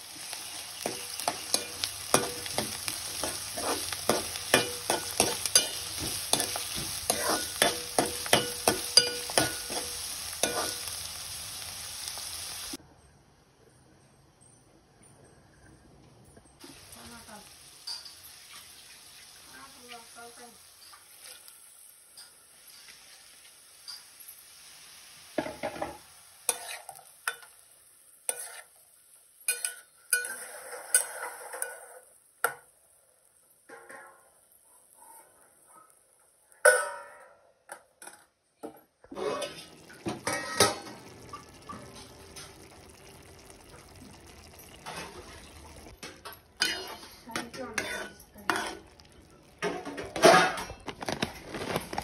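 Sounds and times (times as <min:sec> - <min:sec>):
dishes clattering: 0:00.8 - 0:10.8, 0:36.7 - 0:43.1, 0:44.4 - 0:51.8
metal spoon scraping in pot: 0:00.8 - 0:11.0, 0:26.5 - 0:27.4, 0:28.3 - 0:28.8, 0:29.5 - 0:32.0, 0:39.1 - 0:42.6, 0:46.6 - 0:51.0
metal ladle clinking in pot: 0:29.5 - 0:32.6, 0:39.1 - 0:42.7, 0:46.0 - 0:49.0.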